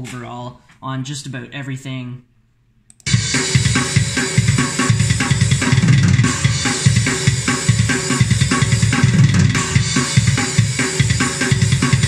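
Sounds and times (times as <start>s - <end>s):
drum kit playing metal groove: 3.0s - 12.0s.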